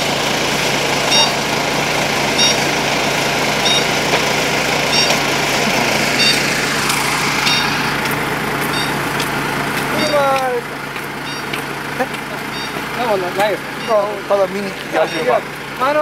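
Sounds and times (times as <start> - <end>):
diesel engines idling: 0.0 - 16.0
high electronic beep: 1.1 - 1.4, 2.4 - 2.6, 3.6 - 3.9, 4.9 - 5.3, 6.1 - 8.1, 8.7 - 9.1, 10.0 - 10.3, 11.2 - 11.5, 12.5 - 12.8, 13.8 - 14.2, 15.0 - 15.4.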